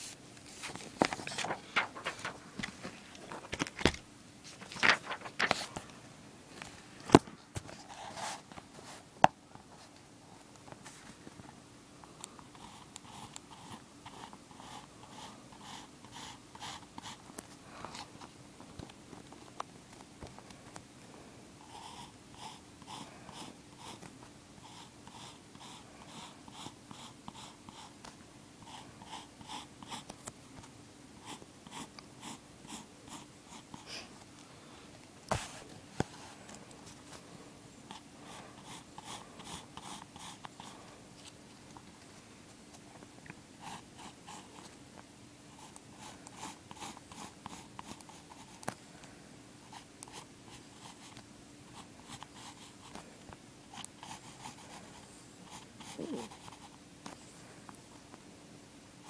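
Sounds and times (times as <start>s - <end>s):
pencil scratching on paper: 45.6s - 48.6s, 51.8s - 53.0s, 53.7s - 56.7s.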